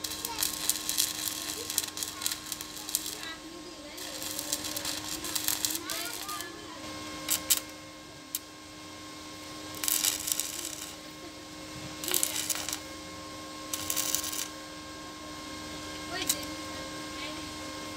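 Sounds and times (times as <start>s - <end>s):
welding arc crackling: 0.0s - 8.6s, 9.4s - 13.0s, 13.6s - 14.6s, 16.1s - 16.6s.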